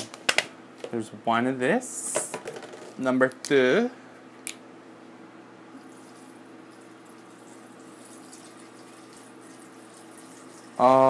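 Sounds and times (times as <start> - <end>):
water pouring into a jar: 5.9 - 10.9.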